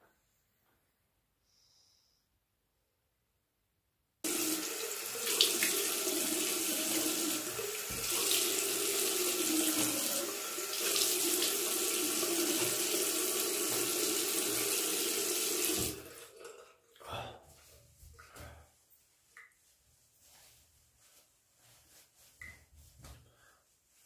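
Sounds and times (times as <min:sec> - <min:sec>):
tap running into sink: 0:05.2 - 0:10.1, 0:12.2 - 0:16.0.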